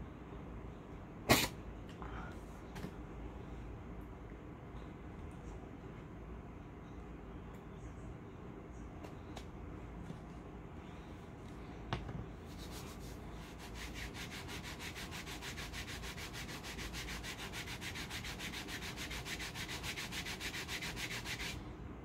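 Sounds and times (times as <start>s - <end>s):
paper strip rubbing on skin: 12.5s - 21.6s.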